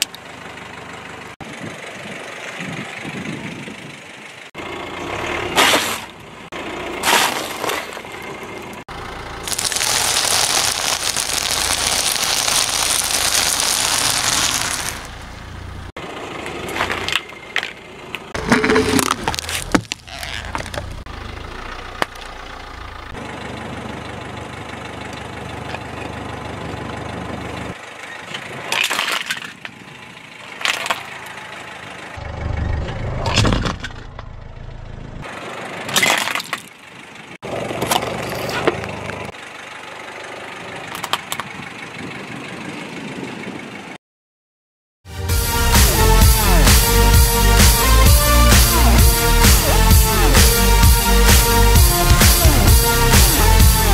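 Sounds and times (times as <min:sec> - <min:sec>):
car engine running low: 0:00.0 - 0:36.0, 0:36.7 - 0:44.0, 0:45.5 - 0:53.9
tyre crushing food: 0:09.5 - 0:15.1, 0:18.4 - 0:20.9.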